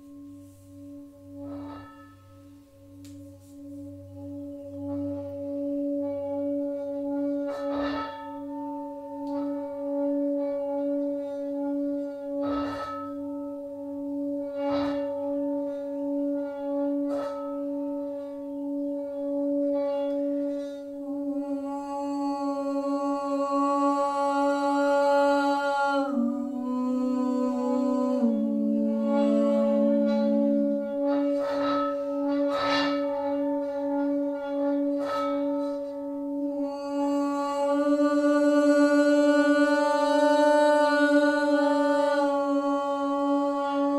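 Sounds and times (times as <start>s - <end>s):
lower held tone: 0.0s - 43.9s
singing bowls ringing: 0.0s - 43.9s
bright held tone: 25.9s - 33.0s.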